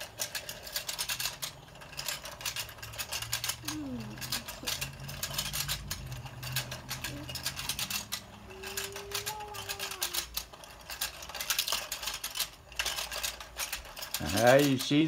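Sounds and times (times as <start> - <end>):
plastic rods tapping: 0.0 - 15.0
toy pond clicking and rattling: 0.0 - 15.0.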